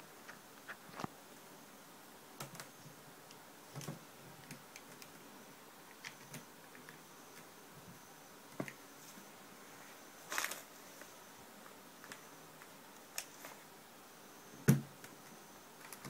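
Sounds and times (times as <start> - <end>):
handling rustle: 9.0 - 11.2.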